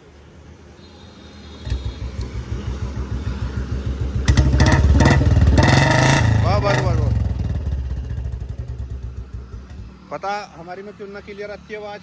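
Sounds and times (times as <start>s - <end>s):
motorcycle engine starting and revving: 1.6s - 10.0s.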